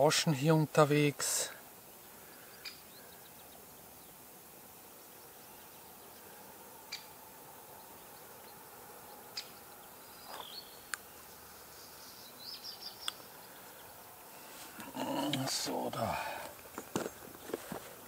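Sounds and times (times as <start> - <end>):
faint outdoor background: 0.0 - 18.0
high bird chirps: 9.2 - 10.9, 11.8 - 13.9
small sharp clicks: 13.0 - 13.3.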